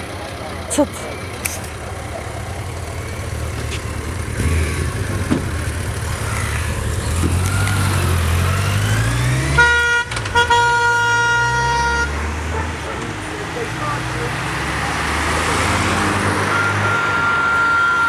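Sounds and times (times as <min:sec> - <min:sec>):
vehicle engine rumble: 0:00.0 - 0:18.0
horn blast: 0:09.4 - 0:12.4.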